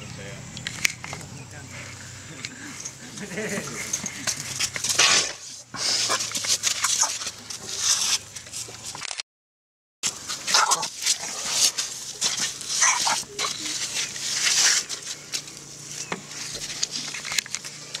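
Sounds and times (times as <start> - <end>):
elephant snuffling through trunk: 3.6 - 8.8, 10.1 - 18.0
elephant squeaks: 3.9 - 8.3, 10.5 - 11.5, 12.3 - 14.9.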